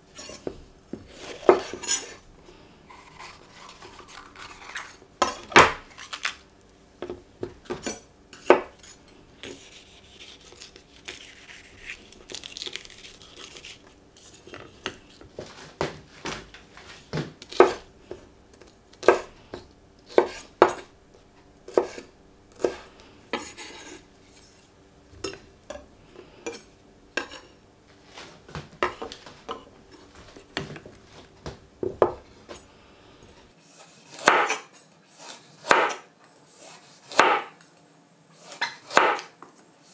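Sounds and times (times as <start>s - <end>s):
faint steady hum: 0.0s - 39.9s
knife slicing carrot: 33.7s - 37.6s, 38.4s - 39.9s.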